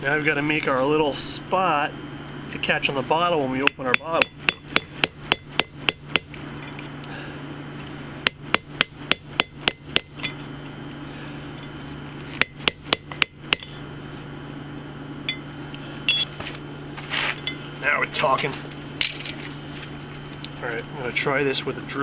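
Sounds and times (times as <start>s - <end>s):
hammer striking punch on steel: 3.6s - 6.4s, 8.2s - 10.4s, 12.4s - 13.7s.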